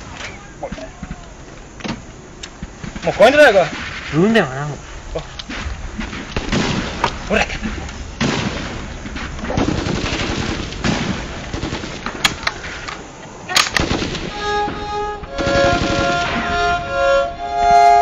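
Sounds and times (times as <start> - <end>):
rapid gunfire: 5.5 - 7.2, 8.2 - 12.8, 13.7 - 14.4, 15.4 - 16.5
sharp gunshots: 5.5 - 12.9, 13.5 - 16.8
solo violin playing slow notes: 14.3 - 18.0.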